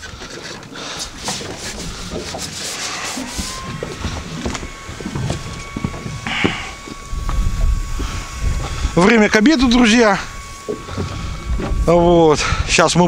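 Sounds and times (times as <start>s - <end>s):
rubbing and light knocks: 0.0s - 7.0s
faint steady whine: 0.0s - 13.0s.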